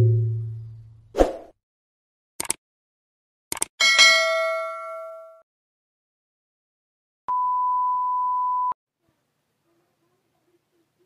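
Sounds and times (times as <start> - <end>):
bell ding: 3.8 - 5.4
test tone beep: 7.3 - 8.8.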